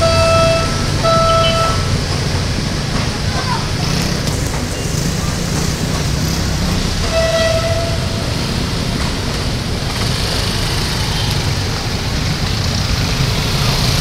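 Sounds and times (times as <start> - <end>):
short vehicle horn: 0.0 - 2.0, 7.0 - 8.2
motorcycles and cars idling: 0.0 - 14.0
train rumbling past: 0.0 - 14.0.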